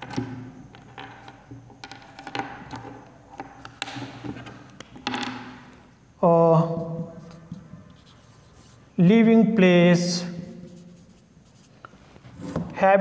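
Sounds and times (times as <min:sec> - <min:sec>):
marker tapping and clicking: 0:00.0 - 0:05.8
marker scratching on whiteboard: 0:06.7 - 0:09.0, 0:10.4 - 0:11.9.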